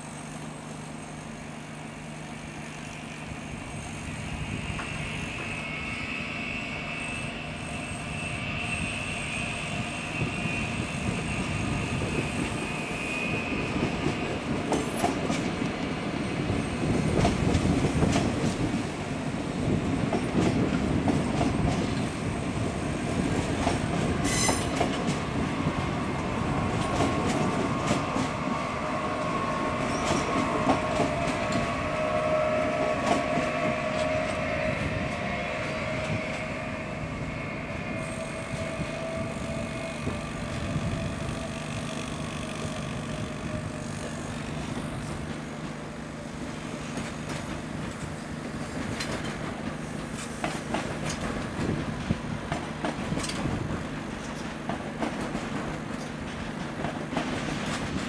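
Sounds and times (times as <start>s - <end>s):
wavering metallic whine: 0.0s - 17.2s, 21.1s - 45.3s
train wheels clicking over rail joints: 22.9s - 28.4s, 29.2s - 35.3s, 41.4s - 58.0s.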